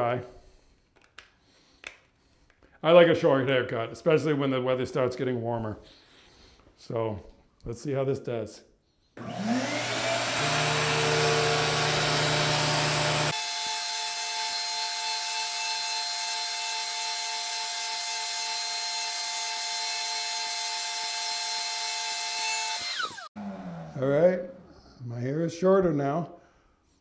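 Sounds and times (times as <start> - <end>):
vacuum hair clipper whining: 9.2 - 14.4, 20.7 - 23.9.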